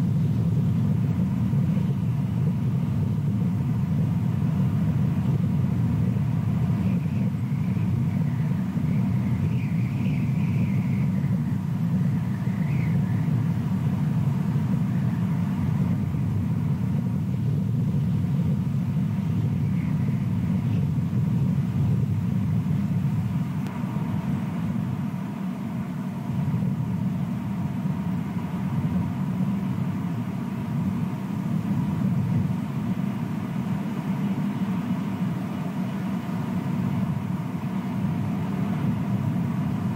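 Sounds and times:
low outdoor rumble: 0.0 - 39.9.

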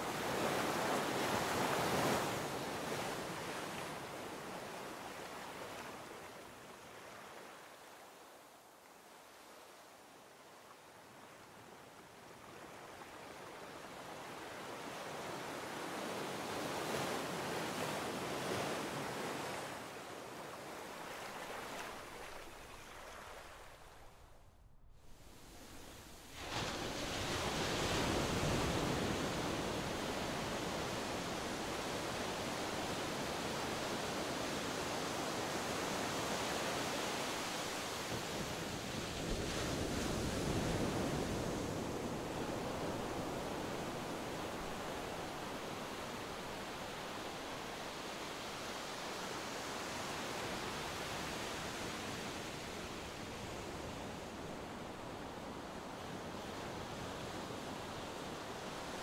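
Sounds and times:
ocean surf washing on shore: 25.0 - 59.0.

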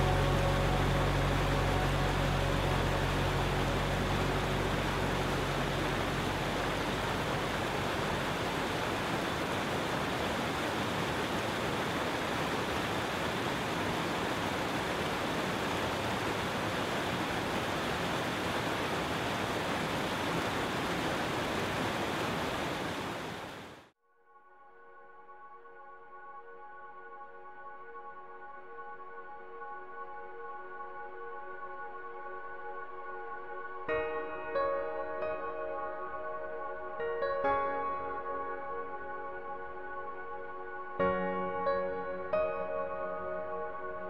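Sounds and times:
faint low hum: 0.0 - 23.4
rushing water: 0.0 - 23.9.

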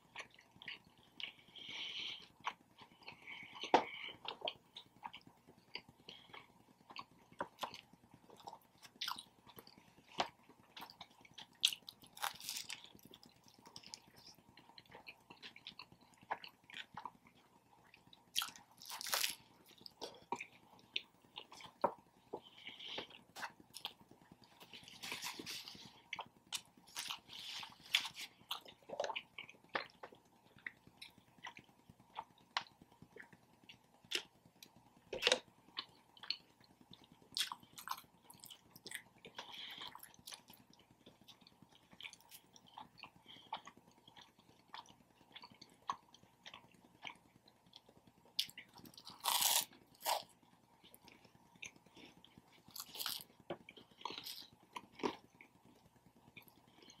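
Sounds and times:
crunchy chewing and biting: 2.1 - 57.0.

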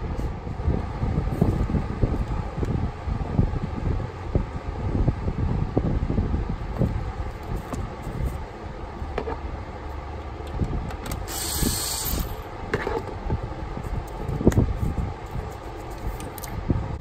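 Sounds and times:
wind rumble on microphone: 0.0 - 17.0
sharp clicks of handling parts: 10.2 - 13.3, 15.2 - 16.6
cordless power tool spinning: 11.1 - 12.4.

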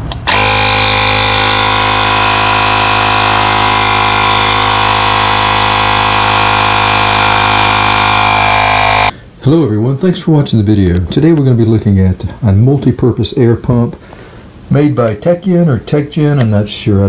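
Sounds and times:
electric air compressor running: 0.0 - 9.1.

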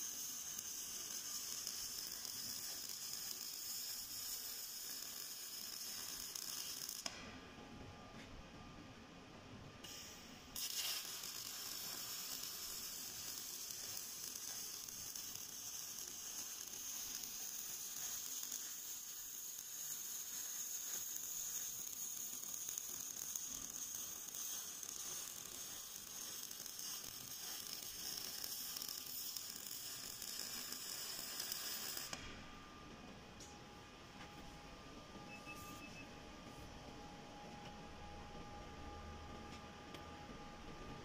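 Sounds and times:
welding arc sizzling: 0.0 - 7.2, 9.8 - 32.3.

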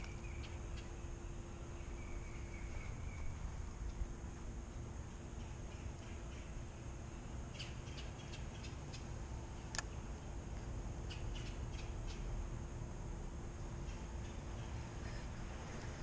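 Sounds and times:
birds chirping: 0.0 - 10.4, 11.0 - 12.4
low outdoor rumble: 0.0 - 16.0.

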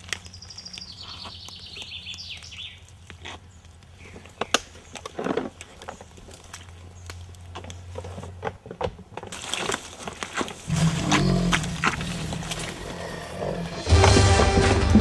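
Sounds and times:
twigs snapping: 0.0 - 8.1, 9.2 - 13.4
leaves and twigs rustling: 0.0 - 15.0
music: 13.7 - 15.0.

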